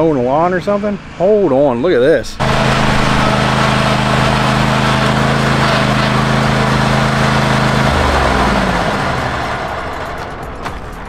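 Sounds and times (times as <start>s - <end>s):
small engine running: 2.4s - 11.0s.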